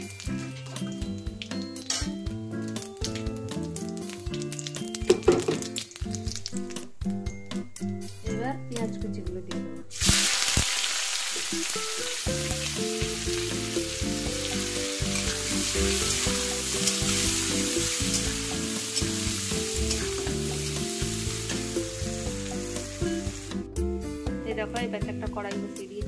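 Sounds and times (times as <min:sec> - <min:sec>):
onions sizzling in hot oil: 0:00.0 - 0:06.6, 0:09.9 - 0:23.7.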